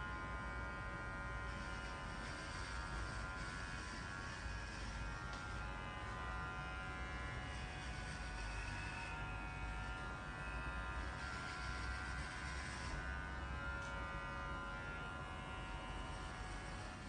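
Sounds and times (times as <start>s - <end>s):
electric hair clippers buzzing: 0.0s - 17.0s.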